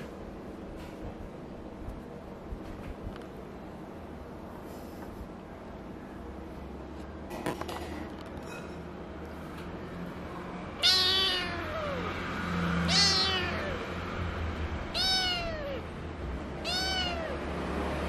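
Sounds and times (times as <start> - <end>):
kitten meowing: 10.8 - 12.1, 12.8 - 14.0, 14.9 - 15.9, 16.6 - 17.5.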